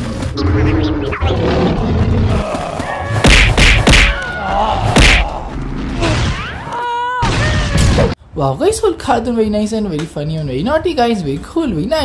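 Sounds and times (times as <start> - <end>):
punch thuds: 3.2 - 4.2, 5.0 - 5.3.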